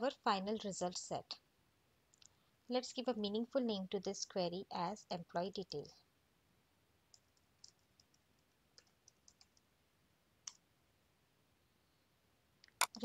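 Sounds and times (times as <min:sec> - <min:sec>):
keyboard typing: 0:07.1 - 0:09.7.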